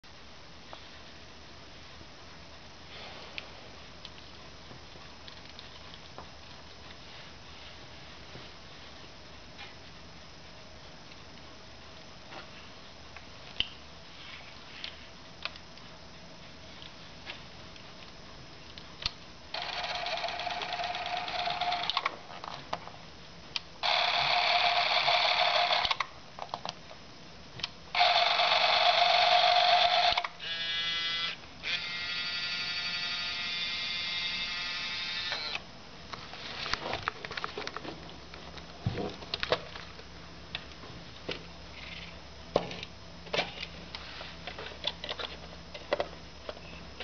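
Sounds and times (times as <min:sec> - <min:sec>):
movie camera motor whirring: 0:19.5 - 0:22.1, 0:23.8 - 0:26.1, 0:27.9 - 0:35.6.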